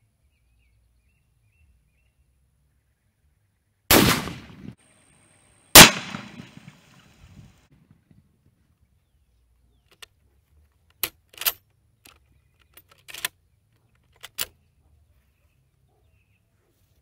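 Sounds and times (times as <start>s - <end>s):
rifle bolt metallic clicks: 10.8s - 14.6s.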